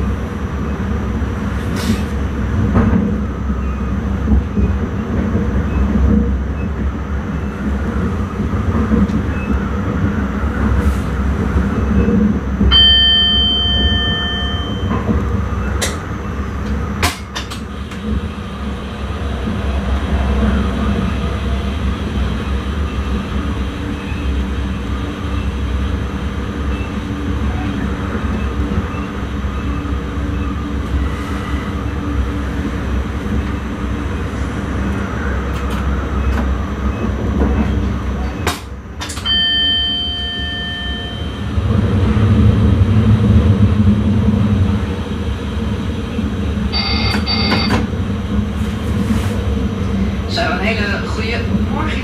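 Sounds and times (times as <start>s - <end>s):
train rumbling on rails: 0.0s - 52.0s
steady electronic beep: 46.7s - 47.8s.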